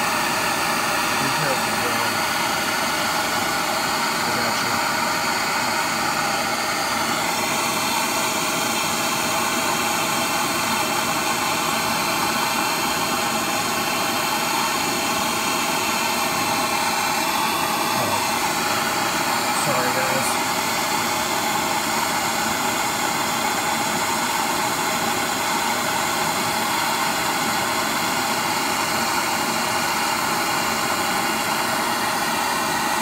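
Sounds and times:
gas torch flame hissing: 0:00.0 - 0:09.3, 0:15.7 - 0:22.2.

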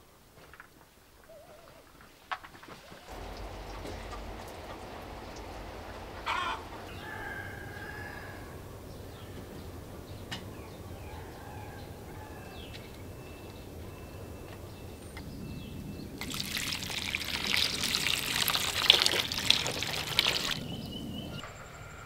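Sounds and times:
background hiss: 0:00.0 - 0:10.1
chickens calling: 0:02.7 - 0:09.8
loud noise burst: 0:03.1 - 0:08.8
rooster crowing: 0:03.1 - 0:08.8.

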